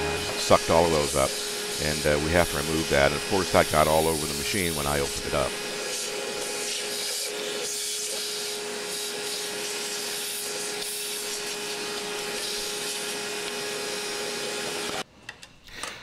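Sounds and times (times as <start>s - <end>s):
blower rushing air: 0.0s - 7.8s.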